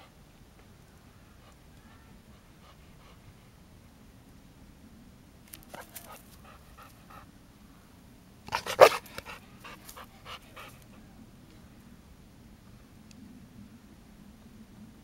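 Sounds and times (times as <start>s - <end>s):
dog panting: 2.3s - 3.5s, 8.5s - 10.9s.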